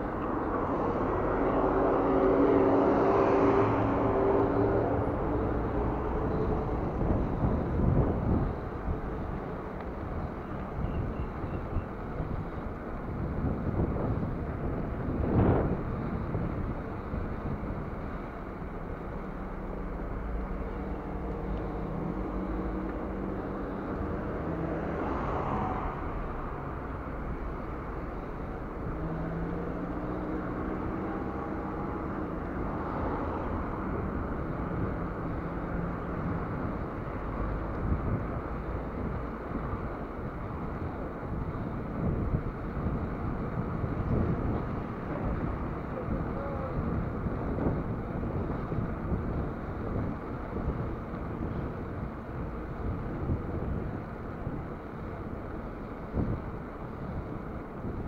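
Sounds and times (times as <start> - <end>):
bicycle tyres rolling on asphalt: 0.0 - 58.0
car engines running: 0.0 - 58.0
wind rumble on microphone: 0.0 - 58.0.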